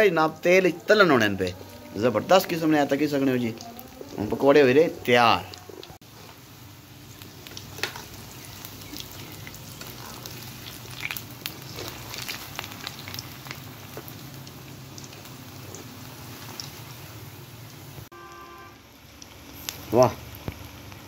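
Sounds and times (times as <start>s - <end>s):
deep-frying sizzle with crackles: 0.0s - 21.0s
metal spoon turning food: 7.4s - 14.2s.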